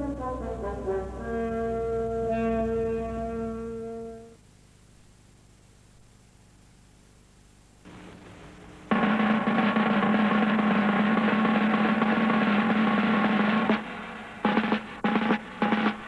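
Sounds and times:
music: 0:00.0 - 0:04.4, 0:08.9 - 0:16.0
snare drum roll: 0:07.9 - 0:16.0.

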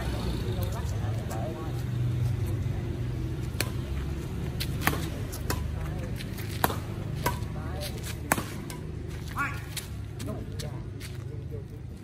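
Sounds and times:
street traffic rumble: 0:00.0 - 0:12.0
rackets hitting shuttlecock: 0:03.4 - 0:10.3.

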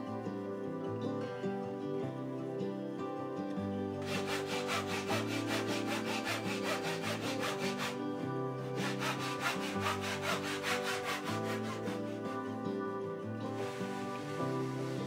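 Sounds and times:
soft instrumental music: 0:00.0 - 0:15.0
handsaw cutting a thin board: 0:04.0 - 0:12.5.

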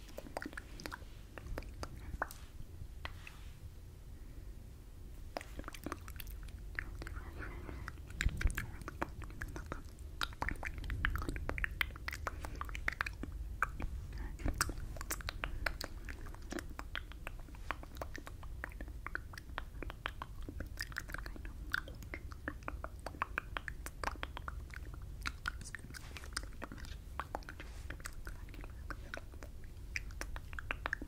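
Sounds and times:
wet mouth sounds: 0:00.0 - 0:03.4, 0:05.2 - 0:31.0
low rumble: 0:00.3 - 0:19.4.

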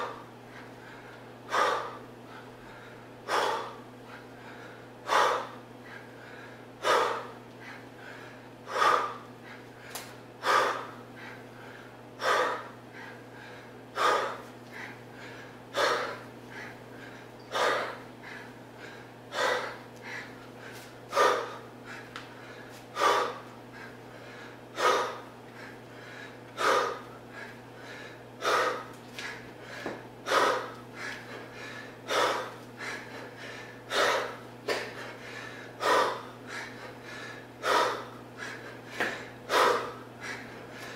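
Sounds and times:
man breathing hard: 0:00.0 - 0:40.9.

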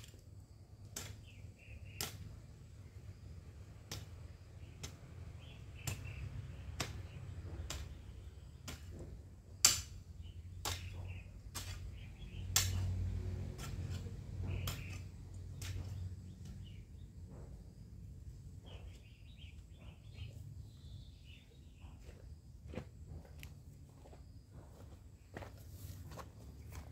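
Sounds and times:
hand tool chopping soil: 0:00.0 - 0:17.5
faint bird chirps: 0:18.6 - 0:22.2.

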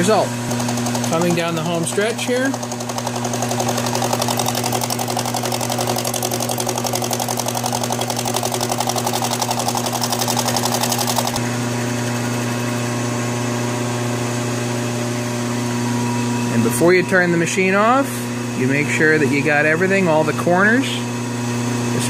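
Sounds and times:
milling cutter chatter: 0:00.9 - 0:05.3.

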